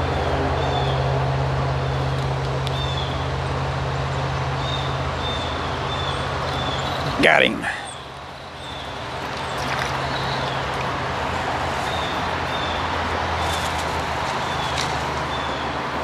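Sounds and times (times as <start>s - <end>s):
water rushing: 6.2s - 16.0s.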